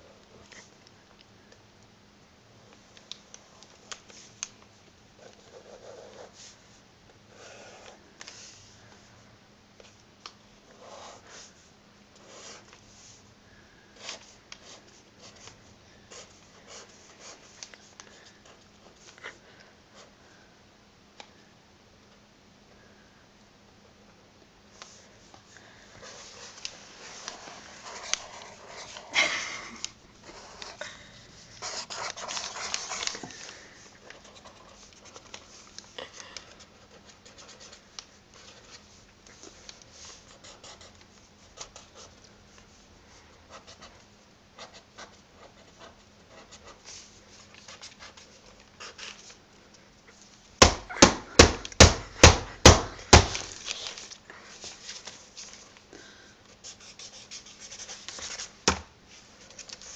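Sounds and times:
pencil scratching on paper: 5.2 - 6.6, 7.3 - 8.0, 12.2 - 13.1, 26.0 - 29.2, 31.6 - 33.2, 56.6 - 58.6.

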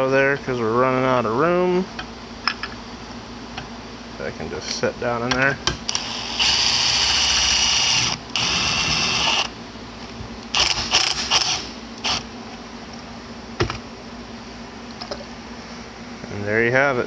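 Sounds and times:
air ratchet whining: 5.9 - 9.5, 10.5 - 12.2.

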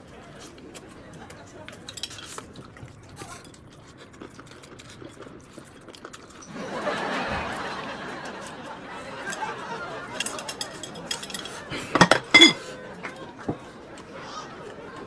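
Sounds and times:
chewing with small clicks: 0.0 - 6.5.

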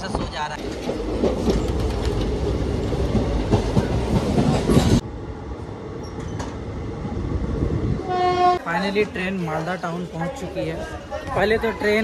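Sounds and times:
train rumbling at speed: 0.0 - 12.0.

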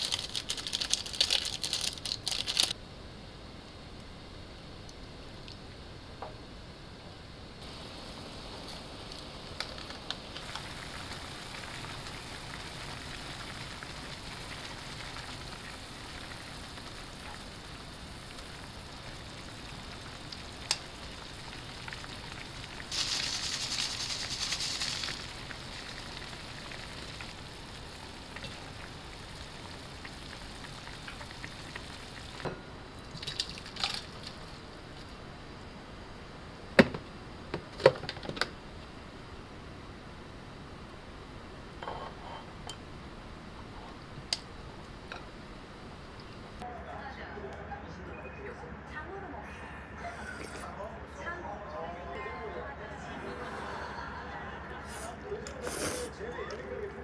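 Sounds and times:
broth boiling and bubbling: 0.0 - 2.8, 7.4 - 46.7.

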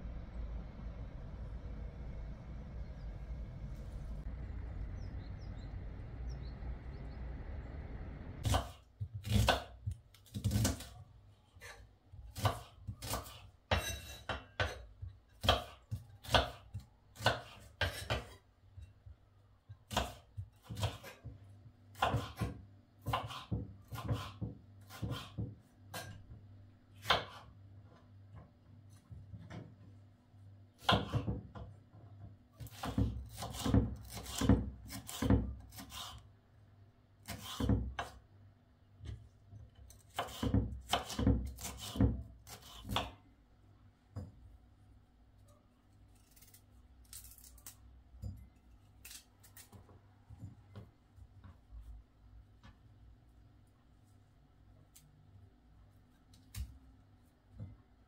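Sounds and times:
knife chopping on wooden board: 8.4 - 10.9, 12.4 - 14.8, 15.4 - 18.4, 19.9 - 21.3, 21.9 - 26.2, 27.0 - 27.5, 30.8 - 31.7, 32.6 - 36.2, 37.2 - 38.2, 40.0 - 43.2.

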